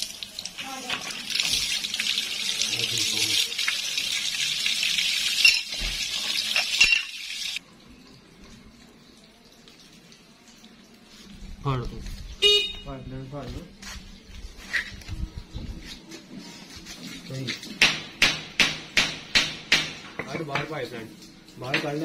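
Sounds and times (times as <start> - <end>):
water gushing from a pipe: 0.0 - 7.6
sharp knocks: 17.8 - 20.7.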